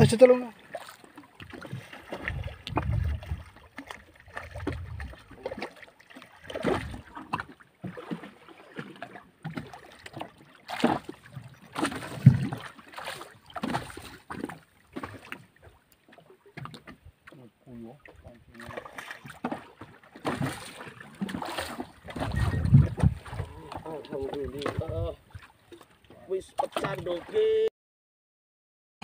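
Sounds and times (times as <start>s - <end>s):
water splashing against boat: 0.0s - 27.7s
low rumbling wind gusts: 2.2s - 3.6s, 4.5s - 5.3s, 22.1s - 23.8s.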